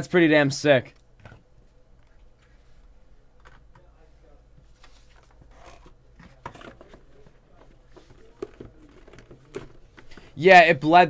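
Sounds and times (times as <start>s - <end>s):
cardboard and plastic rustling: 4.6s - 10.4s.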